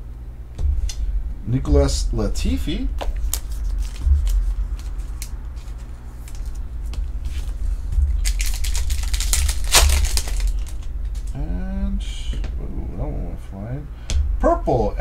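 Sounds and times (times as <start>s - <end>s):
steady low hum: 0.0s - 15.0s
wrapper tearing and crinkling: 3.2s - 6.6s, 8.1s - 11.4s
cards clicking: 8.2s - 11.3s.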